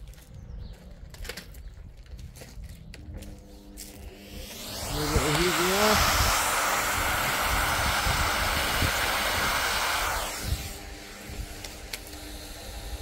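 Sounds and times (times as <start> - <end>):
vacuum cleaner running: 3.5 - 13.0.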